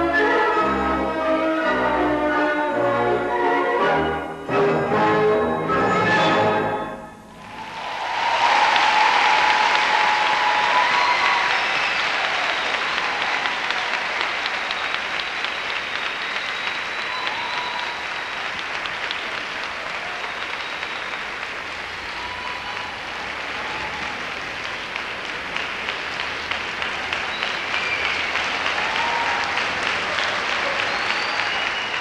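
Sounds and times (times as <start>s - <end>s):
audience applauding: 7.4s - 32.0s.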